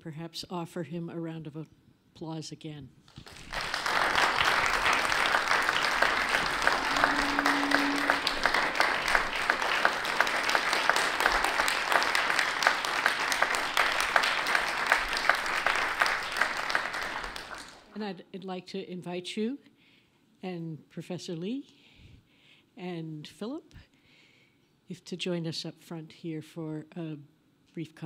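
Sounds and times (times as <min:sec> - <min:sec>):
audience applauding: 0:03.2 - 0:17.9.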